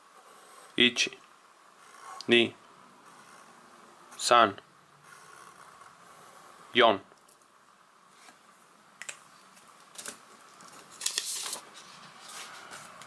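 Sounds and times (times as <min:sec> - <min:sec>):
paper rustling: 0:09.9 - 0:13.0.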